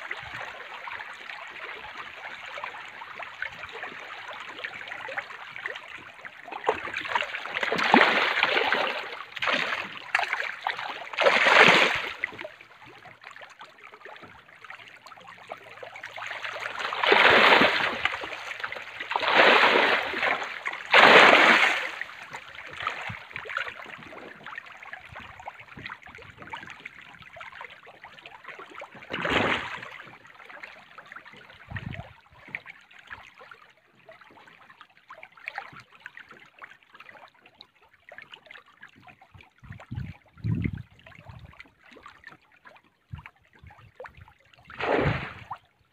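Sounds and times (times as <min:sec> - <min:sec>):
water lapping and trickling: 0:00.0 - 0:45.9
fish splashing at water surface: 0:06.6 - 0:12.5, 0:15.6 - 0:23.9, 0:29.1 - 0:30.0, 0:44.7 - 0:45.6.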